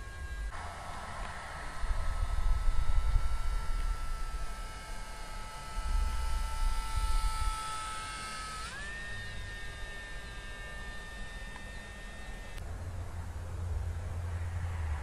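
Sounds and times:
model plane motor whine: 0.0 - 12.6.

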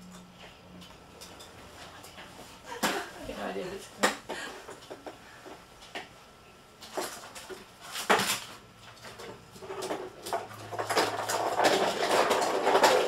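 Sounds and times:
small objects clattering: 6.8 - 13.0.

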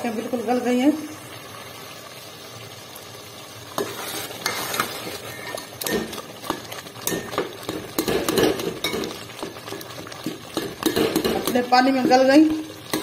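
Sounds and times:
mixture bubbling hiss: 0.0 - 13.0
ladle scraping steel pot: 3.8 - 12.2.

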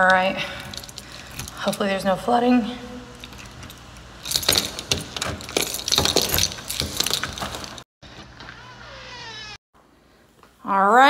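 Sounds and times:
keys jangling on a ring: 3.1 - 7.8.

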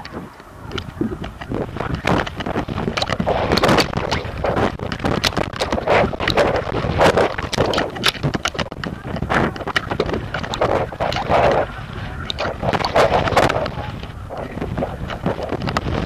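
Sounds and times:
knocks and flaps of kite mount: 0.0 - 16.0
wind buffeting microphone: 0.0 - 16.0.

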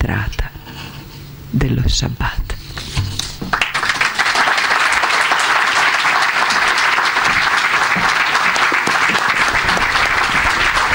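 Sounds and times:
audience applauding: 3.5 - 10.9.

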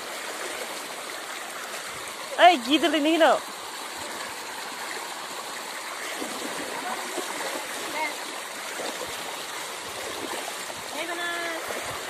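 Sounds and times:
floodwater rushing: 0.0 - 12.0.

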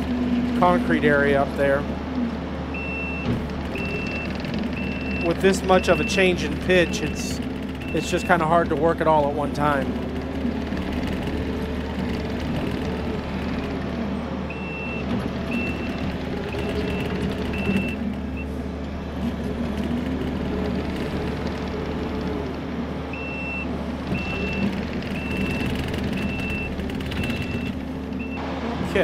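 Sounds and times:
diesel engine under load: 0.0 - 29.0
backup alarm beeping: 2.7 - 8.5, 14.5 - 18.5, 23.1 - 28.4.

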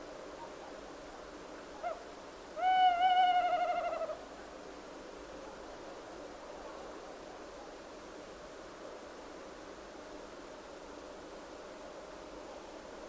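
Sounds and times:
faint steady hiss: 0.0 - 13.0
owl hooting: 2.6 - 4.2.

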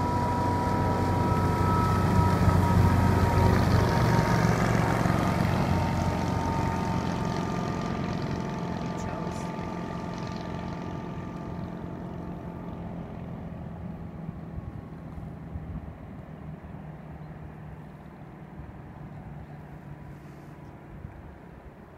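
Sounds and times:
motorboat engine running: 0.0 - 21.9.

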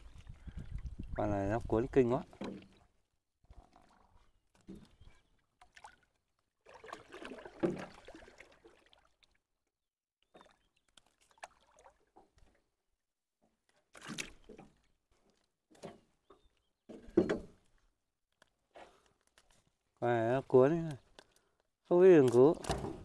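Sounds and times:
water splashing: 0.0 - 9.5, 10.3 - 12.6, 13.8 - 14.9.

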